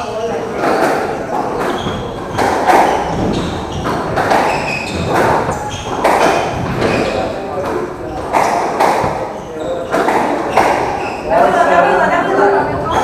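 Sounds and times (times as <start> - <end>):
shoes squeaking on wooden floor: 0.0 - 13.0
ball knocking against walls: 0.6 - 9.3
squash ball struck by rackets: 0.6 - 11.0.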